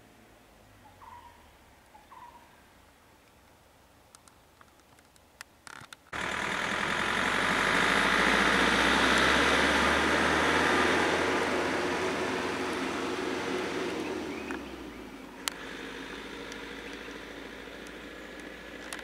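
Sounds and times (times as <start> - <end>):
faint clicks: 3.2 - 6.1
pickup truck engine driving away: 6.1 - 19.0.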